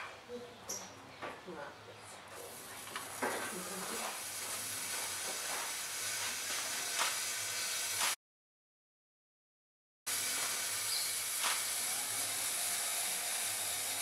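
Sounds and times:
hiss of vapour jet: 0:02.5 - 0:08.2, 0:10.1 - 0:14.0.

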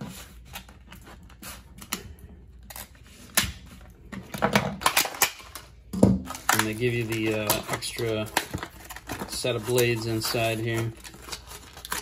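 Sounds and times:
plastic packaging crackling: 0:02.6 - 0:12.0.

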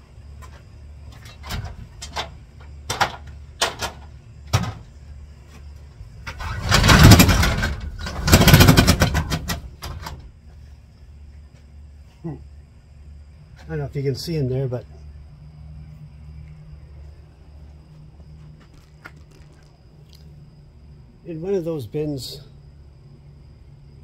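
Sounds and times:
metal door knocks and clicks: 0:01.4 - 0:04.8
steel roll-up door rattling: 0:06.3 - 0:10.2.

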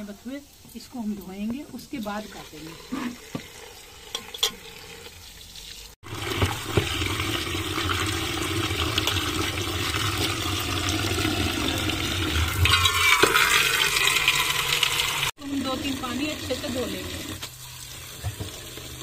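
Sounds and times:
tap water pouring into metal pot: 0:01.4 - 0:19.0.

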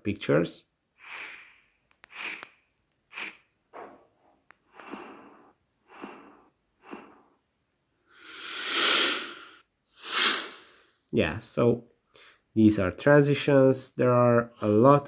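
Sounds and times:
transition whooshes: 0:08.2 - 0:10.8.

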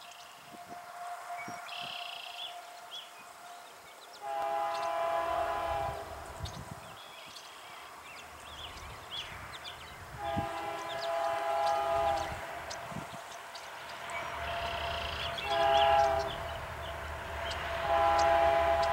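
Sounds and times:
locomotive horn blasts: 0:00.4 - 0:06.3, 0:10.1 - 0:13.1, 0:14.0 - 0:18.9
birds chirping: 0:01.4 - 0:18.9
diesel engine rumble: 0:08.2 - 0:18.9.

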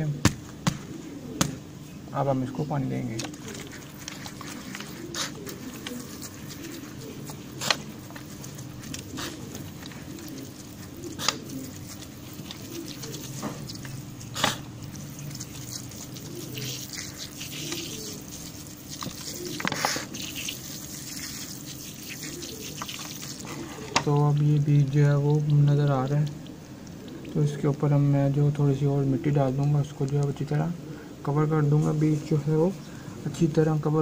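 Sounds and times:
water trickling on wet soil: 0:03.2 - 0:30.4
water splashing: 0:04.6 - 0:27.7.

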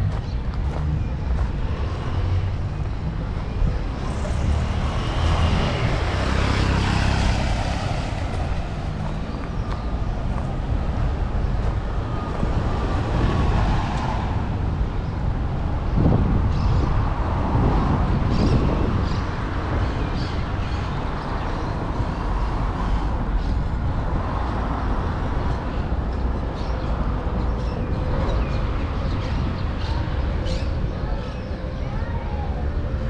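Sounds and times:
vehicle passing: 0:00.0 - 0:19.7
low street rumble: 0:00.0 - 0:33.0.

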